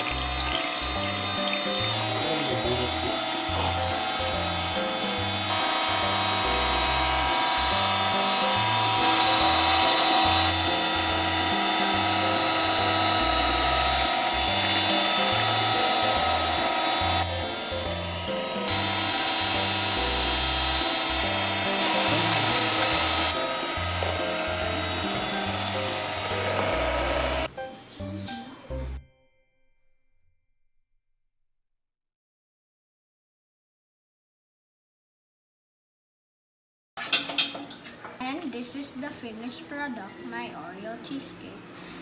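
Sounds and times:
electric hand mixer whining: 0.0 - 27.5
background music with bass line: 6.1 - 29.0.

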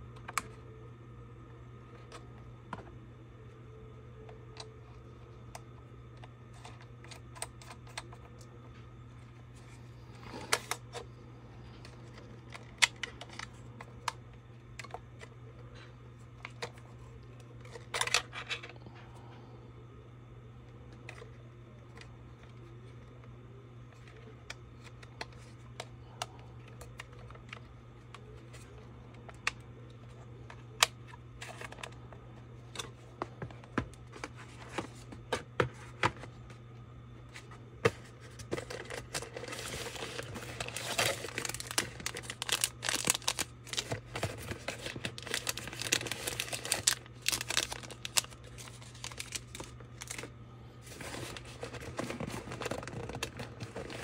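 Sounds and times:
steady low hum: 0.0 - 54.0
packaging crinkling and rustling: 23.9 - 36.4, 37.3 - 54.0.

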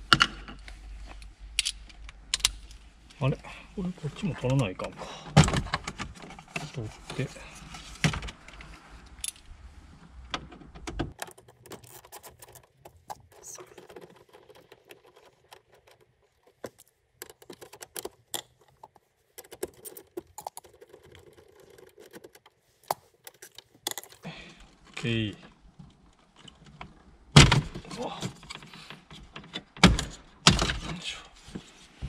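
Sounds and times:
plastic trim clicks and rattles: 10.4 - 24.2.

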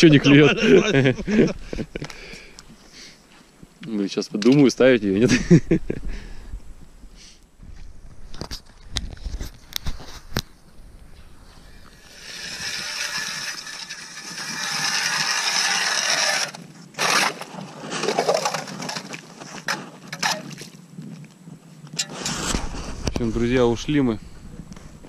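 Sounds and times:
ice auger grinding through ice: 11.9 - 20.7.

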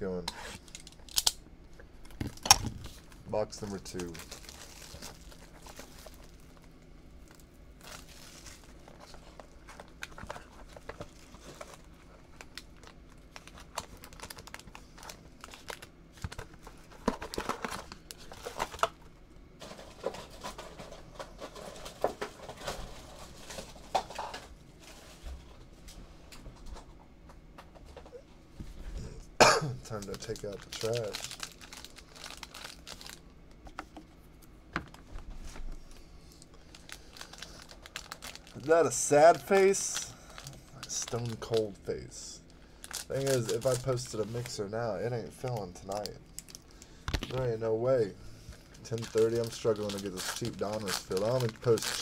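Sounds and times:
plastic wrap crinkling and tearing: 2.1 - 18.9, 29.8 - 33.2, 35.9 - 41.8, 42.7 - 48.1, 48.7 - 52.0.

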